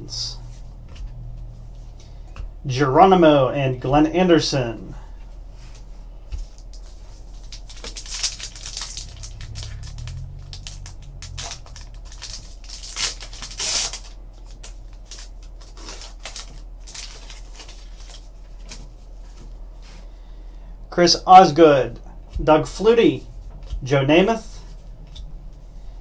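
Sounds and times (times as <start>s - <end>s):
card wrapper tearing and crinkling: 7.3s - 18.2s.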